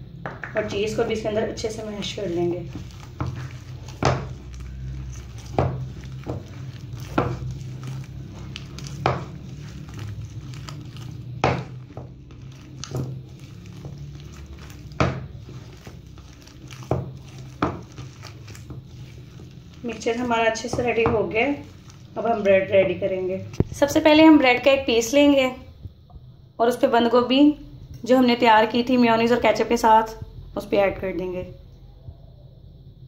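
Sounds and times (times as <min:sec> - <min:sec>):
steady low hum: 0:00.0 - 0:33.0
potatoes being mashed by hand: 0:00.3 - 0:25.1.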